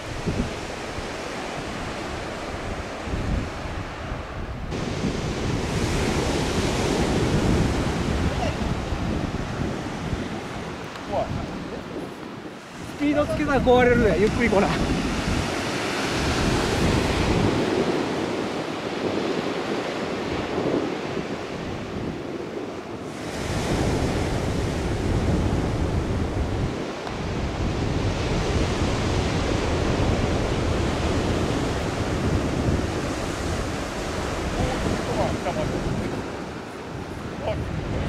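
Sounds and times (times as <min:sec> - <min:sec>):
surf on pebble beach: 0:00.0 - 0:38.0
wind buffeting microphone: 0:00.0 - 0:38.0.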